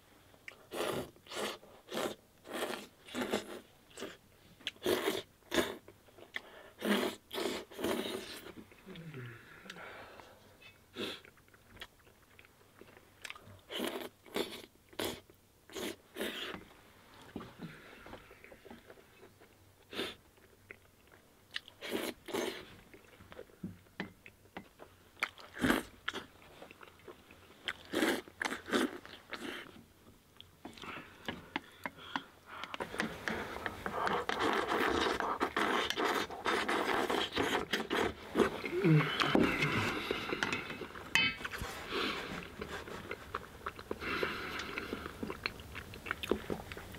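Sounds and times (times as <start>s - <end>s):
man eating with mouth noises: 0.4s - 16.6s, 18.0s - 23.6s, 25.2s - 29.8s, 30.4s - 46.9s
person slurping food: 6.8s - 8.5s, 32.8s - 43.2s.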